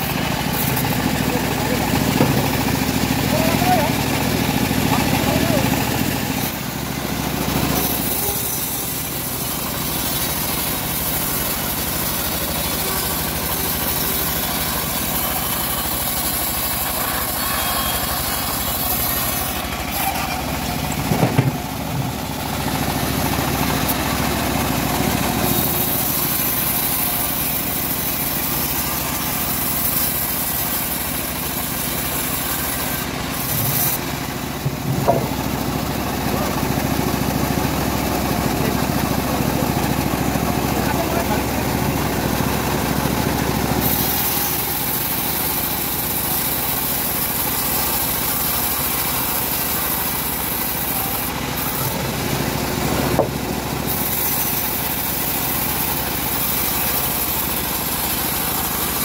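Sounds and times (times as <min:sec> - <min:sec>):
sawmill engine running: 0:00.0 - 0:59.0.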